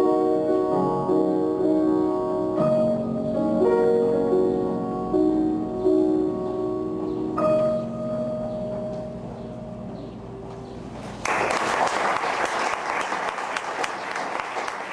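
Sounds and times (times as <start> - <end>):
piano chord ringing: 0.0 - 11.2
audience applause: 11.2 - 14.9.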